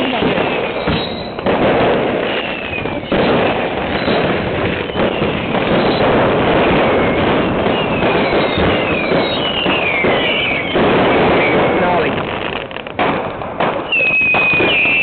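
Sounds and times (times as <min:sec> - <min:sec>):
falling firework whistles: 0:00.0 - 0:12.6, 0:13.6 - 0:15.0
fireworks bangs: 0:00.0 - 0:15.0.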